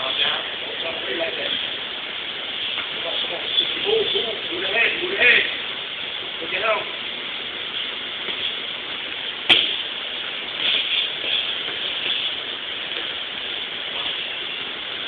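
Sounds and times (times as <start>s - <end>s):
sharp knock: 9.5s - 9.8s.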